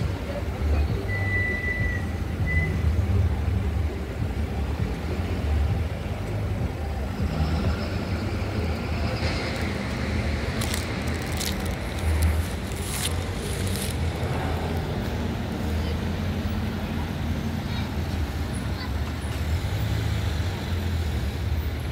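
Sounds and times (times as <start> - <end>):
low rumble of road traffic: 0.0 - 21.9
car tyre noise: 4.5 - 17.6.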